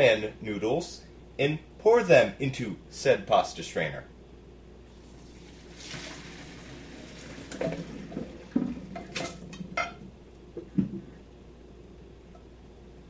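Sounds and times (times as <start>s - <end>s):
water pouring into colander: 4.9s - 9.8s
pot knocking against sink: 7.6s - 11.1s.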